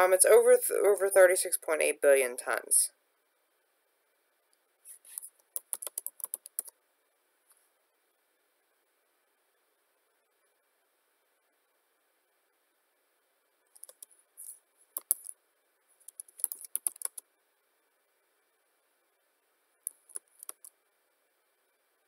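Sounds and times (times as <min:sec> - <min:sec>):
keyboard typing: 0:04.9 - 0:06.8, 0:13.7 - 0:15.4, 0:16.0 - 0:17.3, 0:19.8 - 0:20.7.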